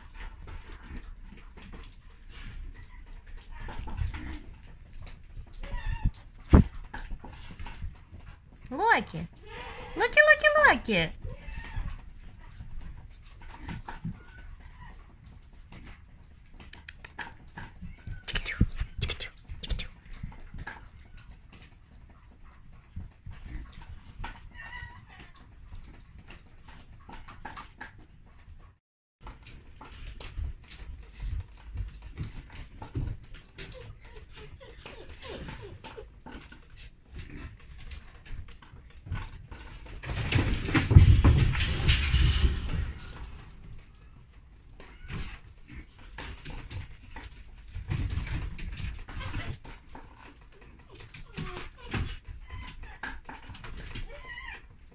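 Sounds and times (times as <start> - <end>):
dog claws clicking on wooden floor: 11.2 - 28.5
puppy whimpering and yipping: 33.6 - 36.4
loud rustling clatter: 39.1 - 51.2.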